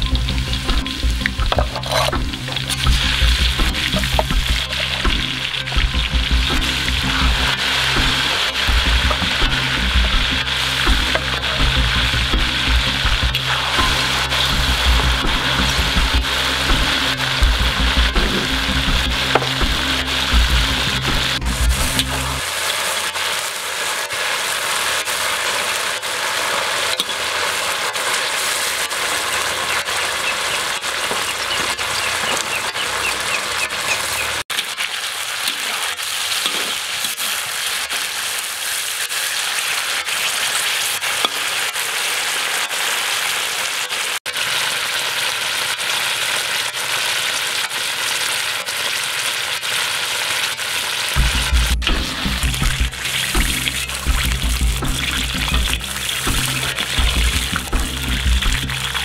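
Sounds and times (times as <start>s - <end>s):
oil sizzling in a wok: 0.0s - 59.0s
metal spatula stirring: 1.4s - 5.7s.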